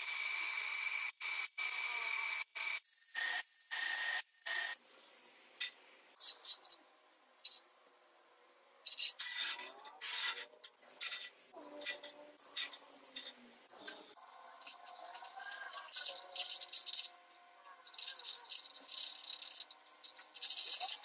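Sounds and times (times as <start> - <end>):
metallic clinks of steel parts: 14.6 - 21.0.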